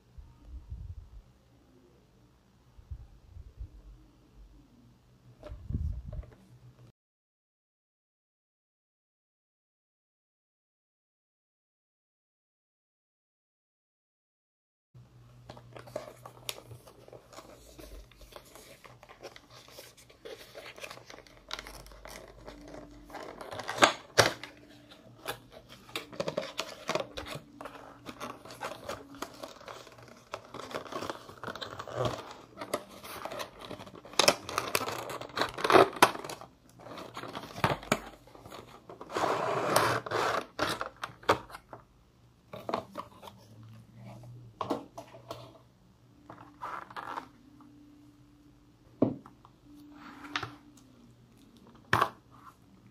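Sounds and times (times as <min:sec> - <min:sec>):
cardboard and plastic packaging crinkling: 0:15.5 - 0:41.8.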